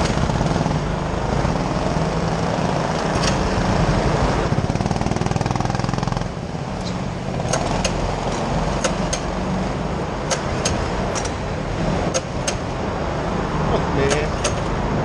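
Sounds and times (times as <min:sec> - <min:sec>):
go-kart engines idling: 0:00.0 - 0:14.9
sharp clicks: 0:06.8 - 0:09.3, 0:10.2 - 0:11.4, 0:12.1 - 0:12.7, 0:14.0 - 0:14.7.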